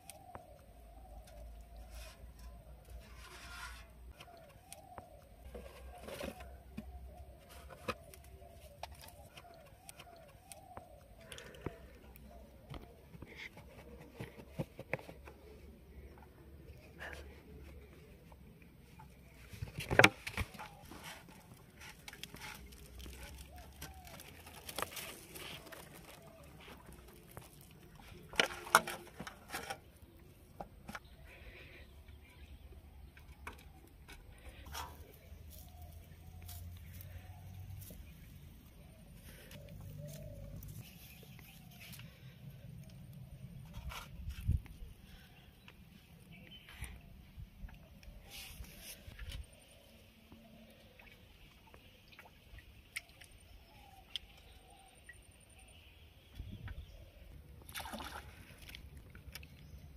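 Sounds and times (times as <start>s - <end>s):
birds calling: 0.0s - 44.3s
hands squishing wet dough: 19.8s - 28.3s.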